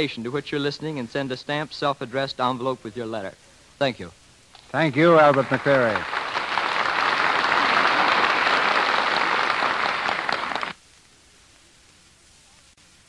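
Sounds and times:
audience applauding: 0:04.8 - 0:10.8.

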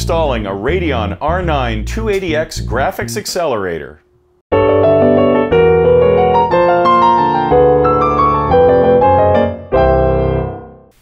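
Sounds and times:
piano theme music: 0:04.5 - 0:11.0.

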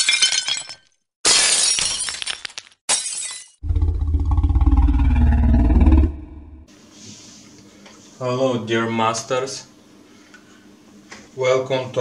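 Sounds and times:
glass shattering: 0:00.0 - 0:03.6.

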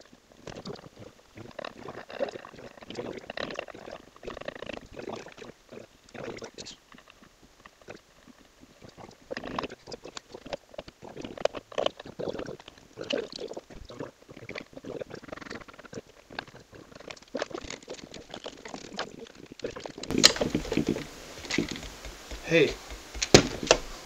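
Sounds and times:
small clicks knocks and scraping: 0:06.9 - 0:12.9, 0:14.5 - 0:24.0.

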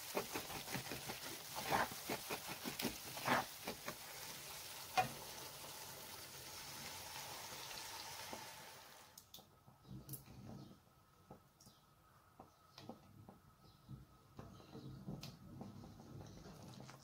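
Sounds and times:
mixture sizzling in a frying pan: 0:00.0 - 0:09.2.

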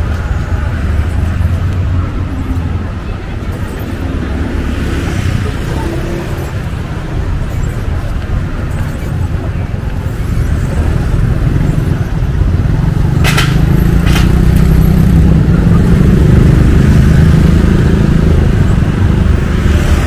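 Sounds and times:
sharp clacks: 0:13.2 - 0:14.8.

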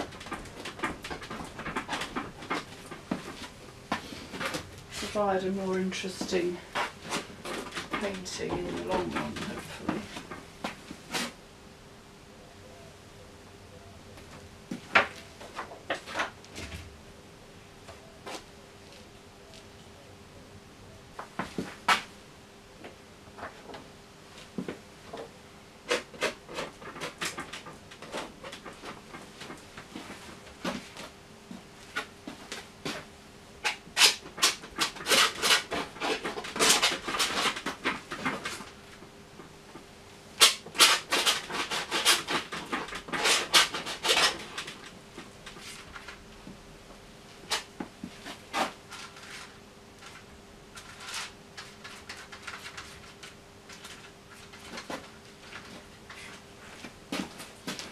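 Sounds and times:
faint steady hum: 0:00.0 - 0:57.9.

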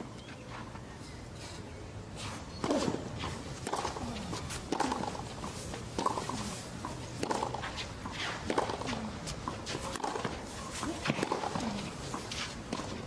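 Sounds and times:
tennis ball hit by rackets: 0:02.6 - 0:13.0.

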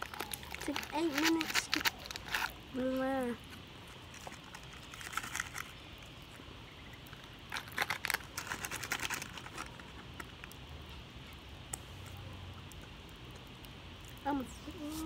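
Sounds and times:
plastic packet crinkling: 0:00.0 - 0:02.9, 0:04.0 - 0:05.8, 0:07.5 - 0:10.4.

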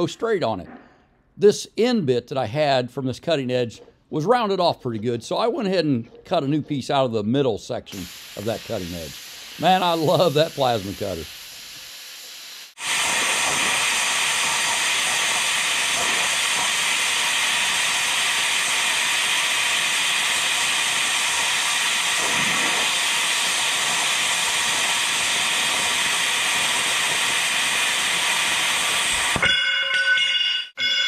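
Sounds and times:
plasma cutter hissing: 0:07.9 - 0:29.4.

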